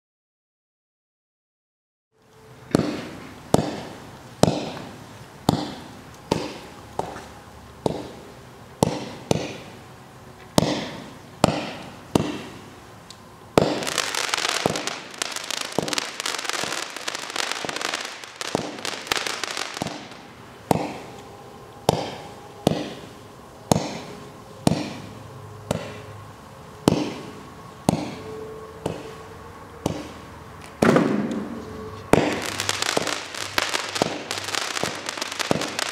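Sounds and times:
firework bangs: 2.7 - 9.8, 10.6 - 12.8, 13.5 - 21.1, 21.8 - 25.1, 26.8 - 28.2, 30.8 - 35.9
firework crackling: 2.7 - 9.9, 10.6 - 21.2, 32.1 - 35.9.

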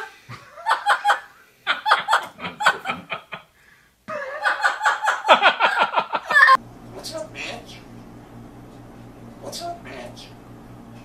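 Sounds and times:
high-pitched laughter: 0.0 - 3.5, 4.1 - 6.6.

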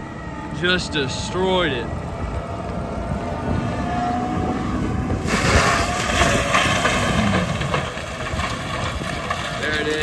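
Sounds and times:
diesel engine running under load: 0.0 - 10.0.

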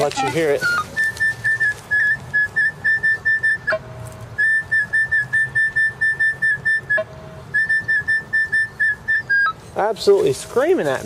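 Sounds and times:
metal detector high-pitched beeping: 0.0 - 3.8.

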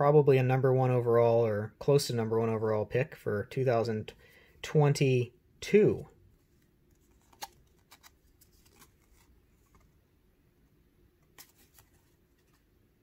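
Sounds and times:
trading cards clicking and sliding: 6.6 - 9.9, 11.2 - 12.7.

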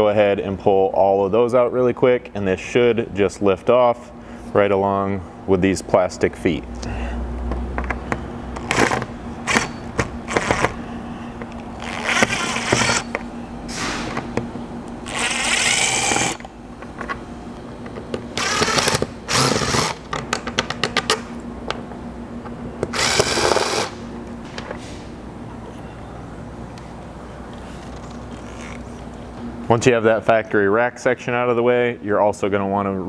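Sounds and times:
cordless drill running: 11.8 - 13.1, 15.0 - 16.4, 18.4 - 20.0, 22.9 - 24.0.

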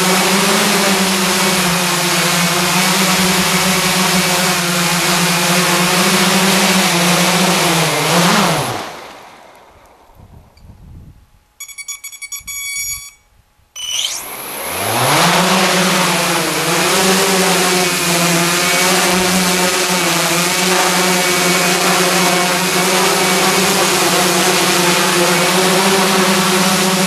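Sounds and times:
drone motors and propellers humming: 0.0 - 10.6, 13.8 - 27.0
rapid electronic beeping: 11.6 - 13.2.

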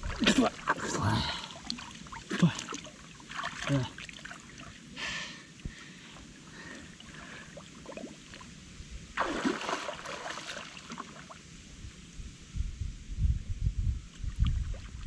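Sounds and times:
water splashing and sloshing: 0.0 - 11.5
faint watery background: 0.0 - 15.0.

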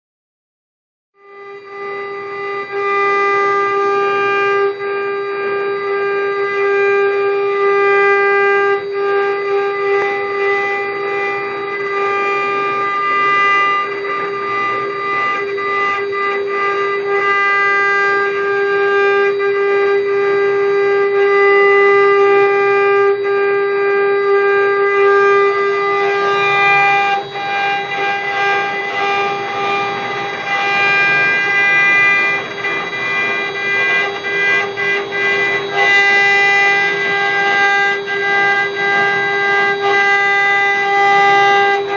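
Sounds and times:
router spindles whining: 1.2 - 41.9
bits cutting wood crackling: 24.9 - 39.9.

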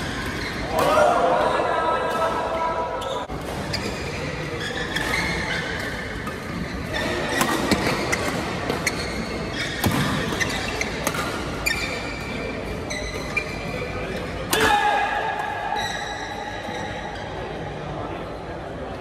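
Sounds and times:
shoes squeaking on floor: 0.0 - 0.7, 2.9 - 14.1, 15.7 - 17.4
rackets hitting shuttlecock: 4.9 - 9.0, 9.8 - 13.5.

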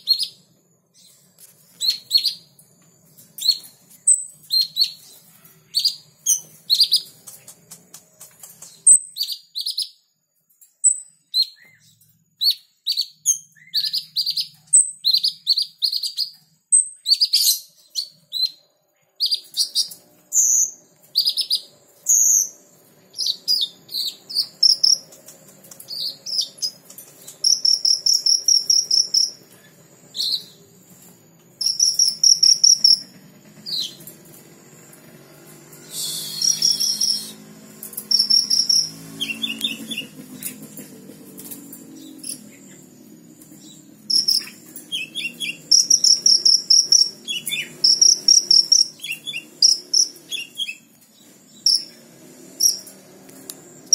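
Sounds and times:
sunbird chirping: 0.0 - 53.9
high buzzing trills: 21.5 - 40.6, 41.3 - 53.9.

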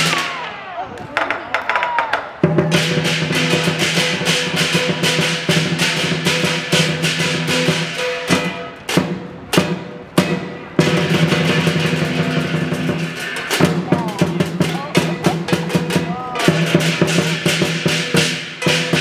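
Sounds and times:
large drum beaten fast: 2.4 - 19.0
clashing cymbals: 2.7 - 19.0.

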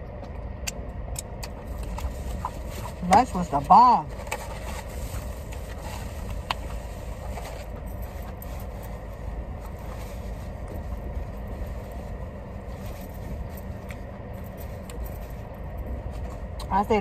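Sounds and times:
car interior rumble: 0.0 - 17.0.

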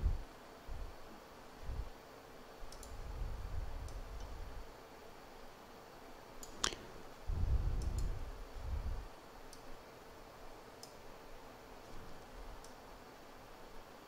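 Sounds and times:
computer mouse clicks: 2.7 - 3.0, 6.4 - 6.9, 7.8 - 8.2, 10.8 - 11.0.

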